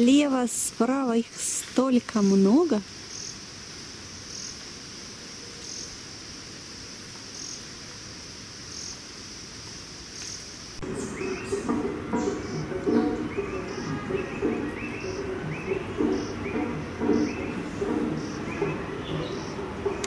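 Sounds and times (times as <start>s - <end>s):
chorus of forest insects: 0.0s - 20.0s
music: 10.8s - 20.0s.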